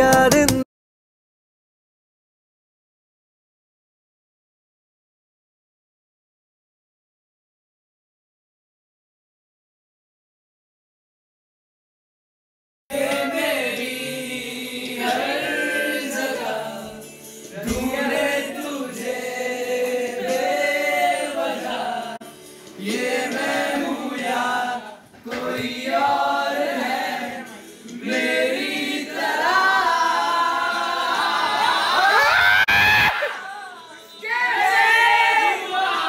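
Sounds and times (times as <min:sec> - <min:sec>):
group of voices singing: 0:12.9 - 0:32.3, 0:33.2 - 0:36.0.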